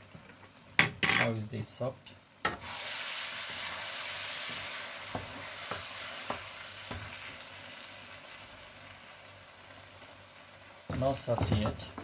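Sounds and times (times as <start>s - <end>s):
curry sizzling in a wok: 2.2s - 12.0s
spatula stirring: 3.4s - 7.4s.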